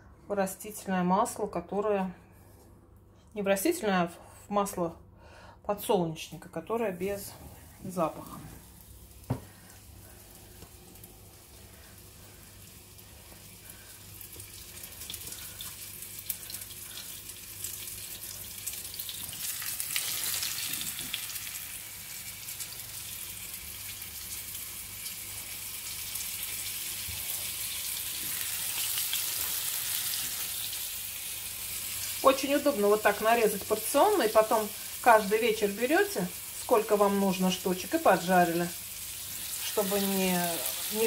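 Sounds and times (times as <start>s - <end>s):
fish frying in oil: 8.7s - 41.0s.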